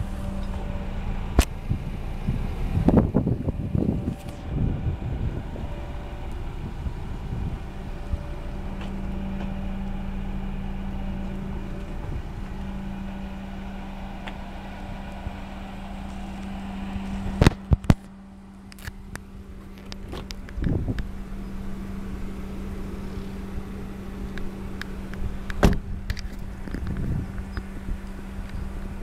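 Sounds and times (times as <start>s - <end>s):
low hum: 0.0s - 29.0s
wind on microphone: 1.2s - 8.5s, 20.4s - 21.2s, 25.2s - 29.0s
car door unlatching with thud: 19.6s - 21.0s, 25.5s - 27.5s.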